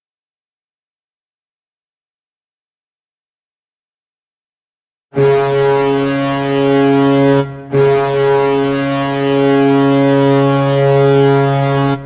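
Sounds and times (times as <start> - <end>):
hockey goal horn blasts: 5.2 - 12.0.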